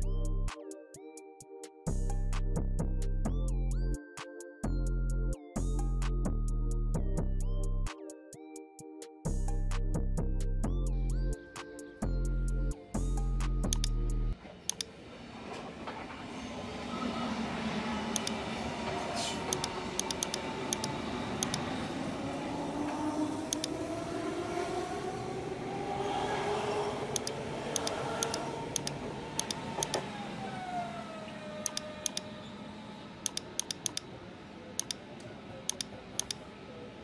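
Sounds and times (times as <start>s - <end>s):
computer mouse clicks: 13.7s - 14.0s, 14.7s - 14.9s, 18.2s - 18.4s, 19.5s - 21.6s, 23.5s - 23.7s, 27.1s - 30.0s, 31.6s - 32.2s, 33.2s - 34.1s, 34.8s - 35.0s, 35.7s - 36.4s
passing traffic: 14.3s - 37.0s.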